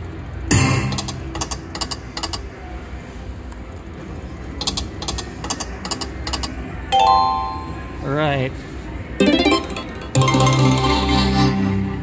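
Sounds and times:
slot machine reels clicking: 0.8 - 2.4, 9.2 - 11.5
slot machine spin burst: 6.9 - 8.0, 9.2 - 11.9.

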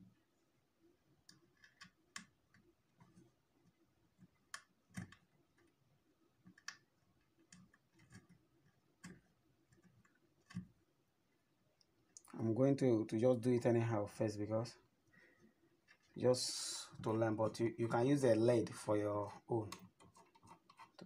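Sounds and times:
clicks of wire being twisted: 1.2 - 3.3, 4.2 - 5.8, 6.4 - 10.8, 19.7 - 21.0.

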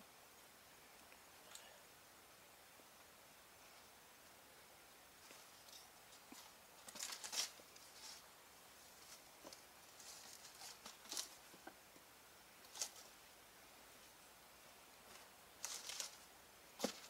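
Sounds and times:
rustling and crinkling gear: 5.2 - 11.8, 12.6 - 13.2, 15.0 - 17.0.

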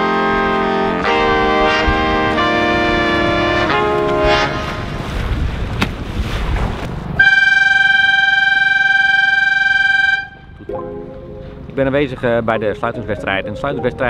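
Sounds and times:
signal horn blast: 0.0 - 5.0, 7.2 - 10.6.

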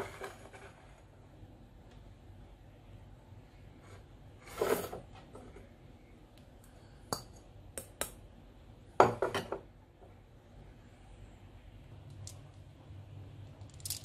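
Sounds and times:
bowl scraping on table: 4.4 - 5.6.

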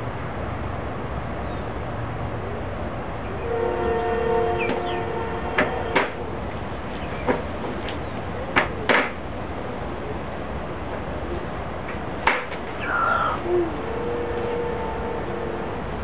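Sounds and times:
steady low hum: 9.4 - 16.0
sustained chord of tones: 12.8 - 16.0.

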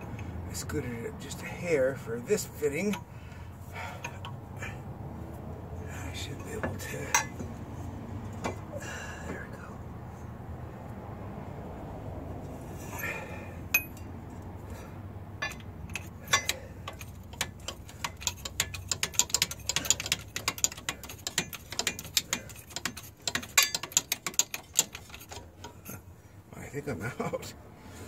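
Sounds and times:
metallic clicks and clinks: 6.4 - 7.5, 15.4 - 26.1.

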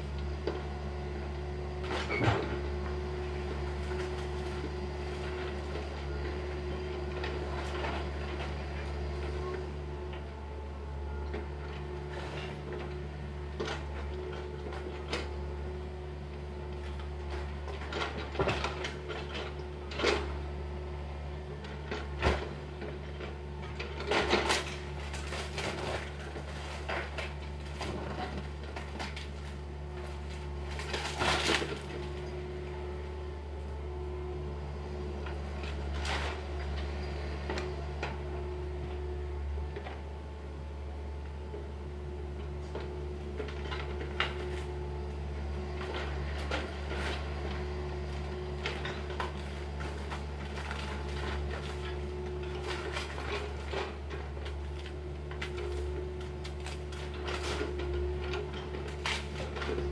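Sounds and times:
excavator diesel engine humming: 0.0 - 59.9
timber and debris clattering: 48.1 - 59.9.

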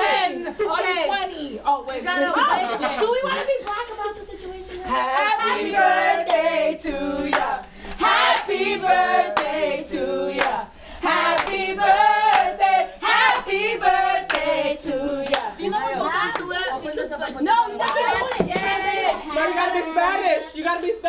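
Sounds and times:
group of people singing: 4.8 - 19.8
hand claps: 7.2 - 8.4, 10.4 - 10.6, 11.4 - 11.6.

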